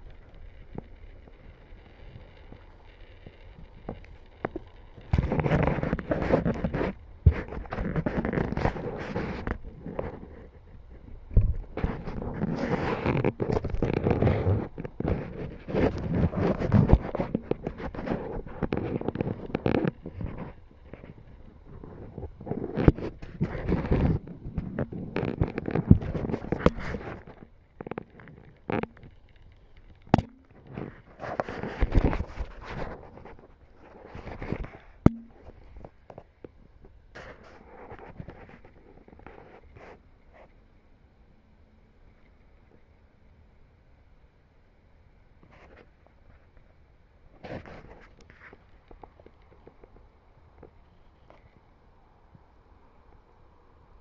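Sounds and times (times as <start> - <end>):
straw and twigs rustling: 0.0 - 40.5
sharp clicks and knocks: 22.8 - 33.4, 34.2 - 37.4.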